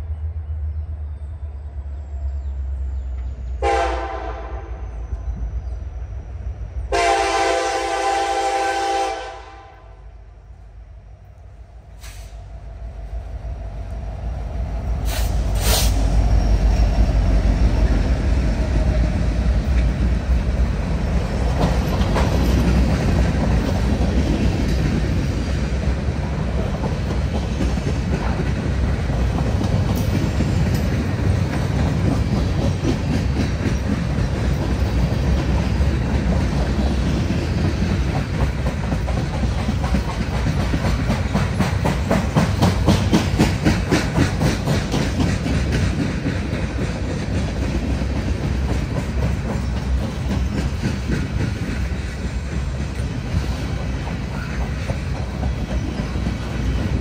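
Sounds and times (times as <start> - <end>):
locomotive engine rumble: 0.0 - 57.0
train air horn: 3.6 - 5.0, 6.9 - 10.1
train wheels clattering on rails: 11.9 - 57.0.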